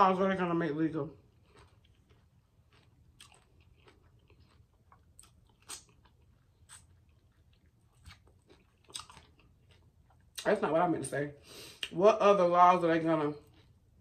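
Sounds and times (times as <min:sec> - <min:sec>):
close chewing and biting: 0:01.2 - 0:10.5, 0:13.3 - 0:14.0.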